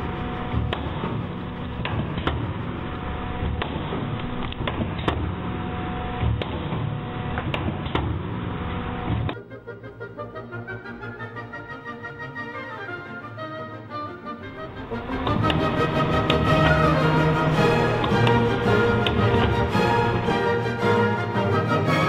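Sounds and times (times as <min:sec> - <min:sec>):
soft music: 0:00.0 - 0:04.4, 0:09.3 - 0:22.0
machine humming: 0:00.0 - 0:09.3, 0:14.3 - 0:21.6
machine clicks and knocks: 0:00.5 - 0:02.6.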